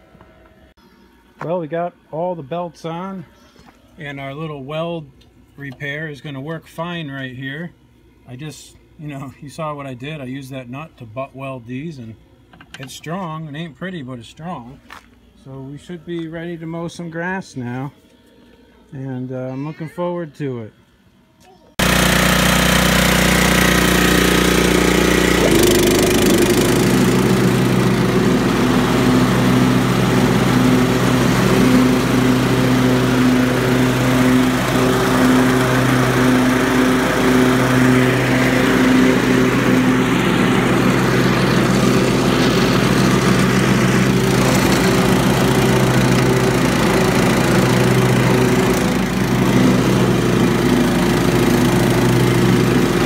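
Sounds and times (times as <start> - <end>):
lawn mower engine running: 21.8 - 53.0.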